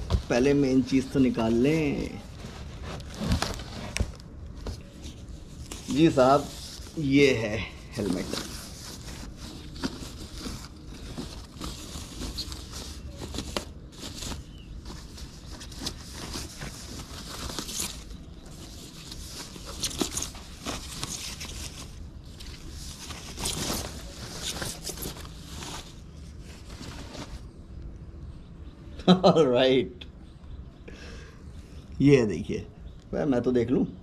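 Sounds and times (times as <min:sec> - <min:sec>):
plastic bag crinkling: 0:00.0 - 0:27.5.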